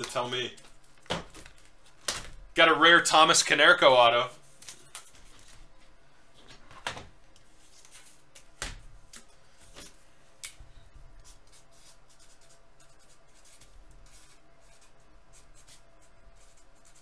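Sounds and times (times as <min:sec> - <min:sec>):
pen scratching on cardboard: 0:11.2 - 0:17.0.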